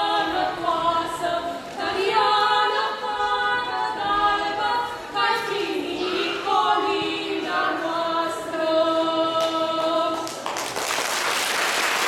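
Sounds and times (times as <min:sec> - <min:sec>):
women singing unaccompanied: 0:00.0 - 0:10.4
audience applause: 0:10.2 - 0:12.0.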